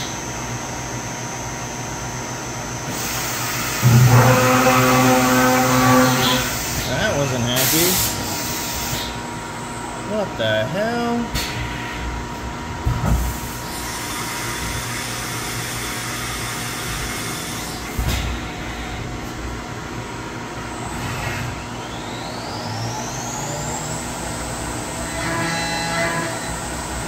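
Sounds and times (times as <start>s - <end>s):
spindle whine: 0.0s - 7.9s
machine clunks: 3.8s - 4.6s.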